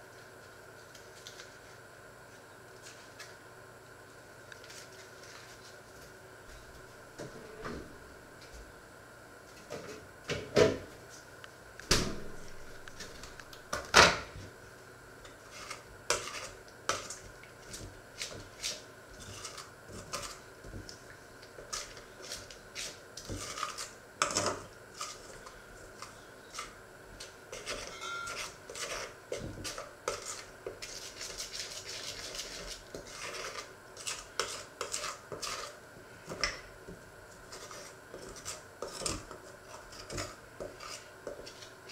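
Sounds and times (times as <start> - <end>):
utensil scraping metal bowl: 15.3 - 17.2, 18.2 - 20.5, 21.6 - 26.8, 27.5 - 35.8, 37.5 - 41.9.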